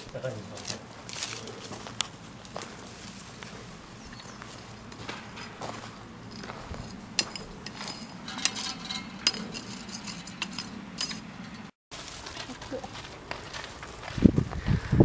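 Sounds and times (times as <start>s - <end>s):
hoe blade clinking on pebbles: 4.2s - 11.7s
hand hoe scraping gravelly soil: 4.4s - 10.8s, 11.9s - 14.7s.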